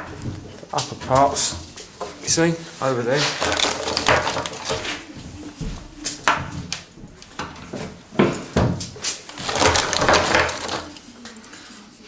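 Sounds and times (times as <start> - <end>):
plastic legs knocking on board: 3.2 - 5.0, 8.2 - 10.9.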